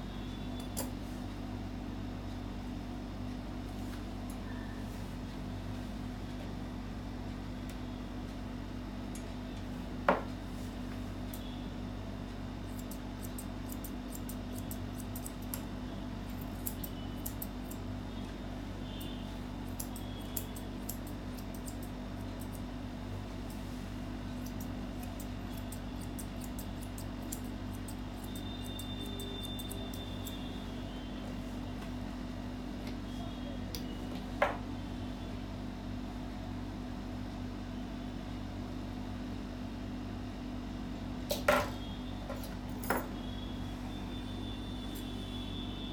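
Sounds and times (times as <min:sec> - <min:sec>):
steady low hum: 0:00.0 - 0:45.9
scissors snipping fur: 0:12.6 - 0:17.9, 0:19.6 - 0:22.8, 0:24.3 - 0:30.5.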